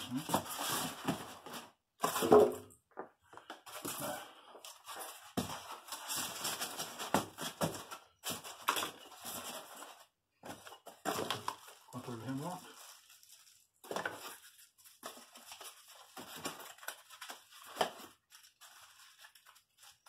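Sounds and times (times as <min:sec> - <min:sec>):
styrofoam scraping and rubbing: 0:00.0 - 0:02.3, 0:04.7 - 0:10.1.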